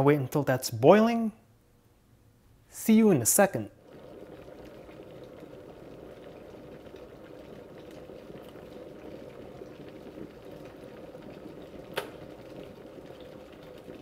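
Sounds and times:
water coming to the boil: 3.8 - 14.0.

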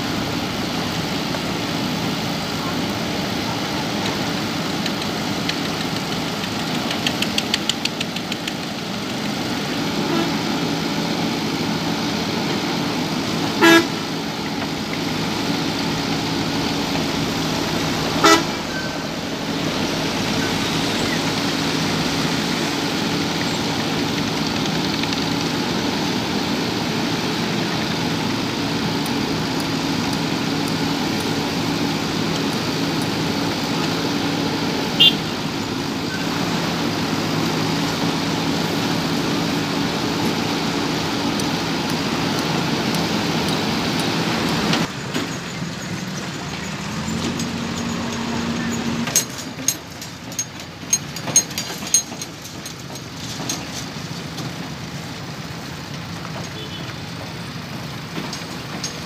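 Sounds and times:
diesel engine running: 0.0 - 59.0
fast mechanical clatter: 4.0 - 9.3, 44.8 - 54.8
vehicle horn toots: 10.0 - 10.4, 13.6 - 14.0, 18.2 - 19.0, 35.0 - 35.4, 56.6 - 57.0.

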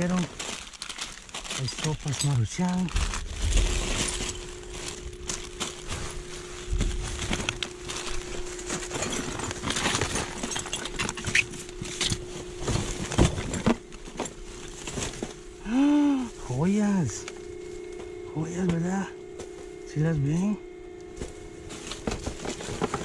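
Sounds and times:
hard items clattering: 0.0 - 15.5, 21.1 - 23.0
plastic bags rustling: 0.0 - 18.2, 21.1 - 23.0
faint steady hum: 0.0 - 23.0.

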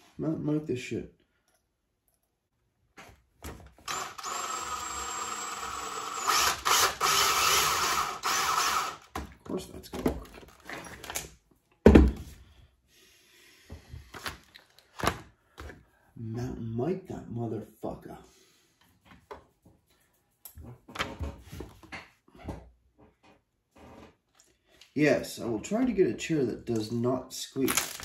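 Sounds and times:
cordless drill running: 3.8 - 9.2.

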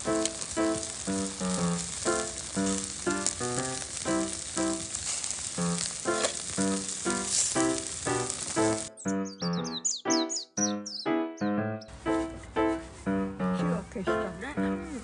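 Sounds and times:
chicken sizzling on grill: 0.0 - 9.0
background music: 5.9 - 15.0.

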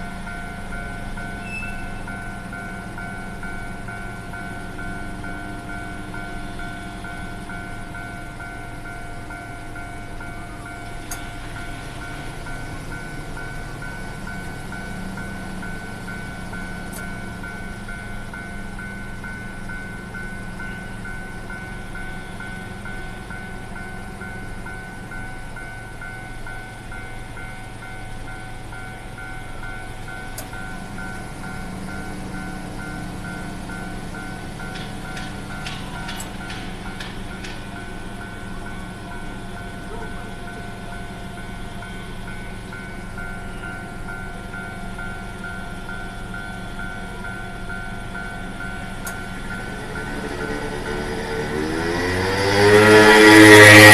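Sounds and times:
level-crossing warning bell dinging: 0.0 - 53.9.

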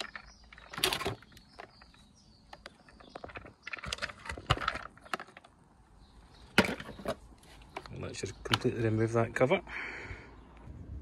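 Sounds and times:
plastic parts clicking and rattling: 0.0 - 5.7.

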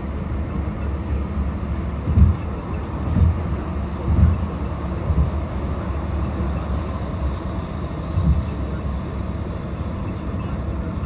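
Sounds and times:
car driving rumble: 0.0 - 11.0
brief low thumps: 2.0 - 3.4, 4.0 - 5.4, 8.2 - 8.6.

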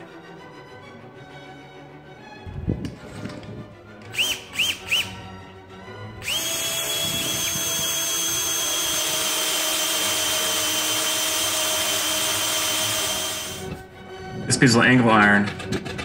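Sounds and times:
cordless drill whining into steel: 4.0 - 5.2, 6.2 - 13.8.

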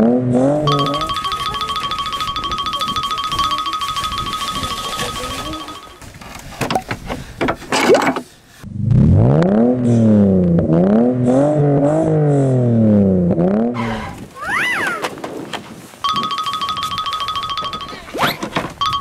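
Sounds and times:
engine-revving sound effect: 8.7 - 14.2.

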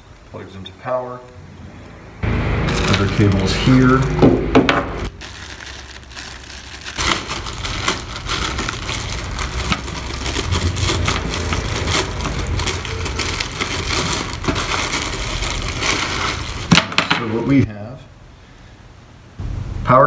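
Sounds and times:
plastic bag crinkling: 2.3 - 4.3, 5.0 - 17.4.

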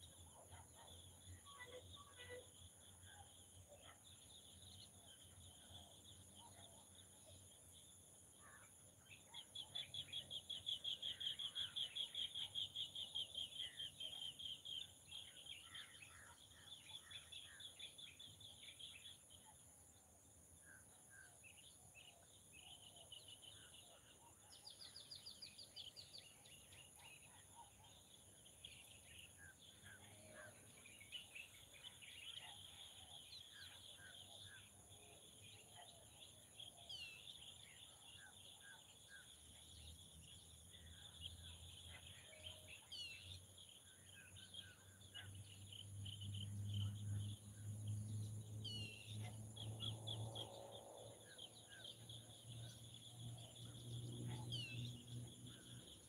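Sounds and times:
bird chirps: 0.0 - 19.7, 20.6 - 56.0
cricket trills: 0.0 - 56.0
insect drone: 28.0 - 56.0.

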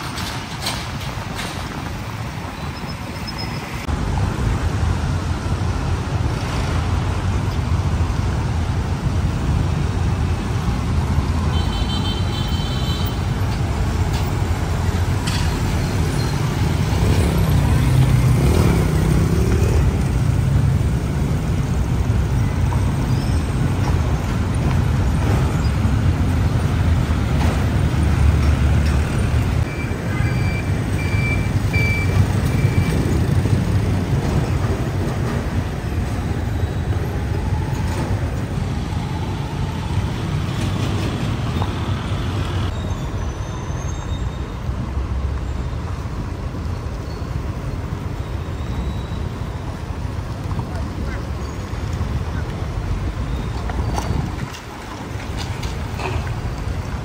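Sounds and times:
road traffic rumble: 0.0 - 57.0
short beeps: 29.7 - 33.0.

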